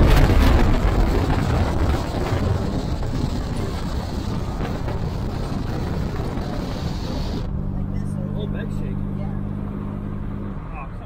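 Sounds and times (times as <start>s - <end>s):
wind buffeting microphone: 0.0s - 8.4s
road and engine noise: 0.0s - 11.0s.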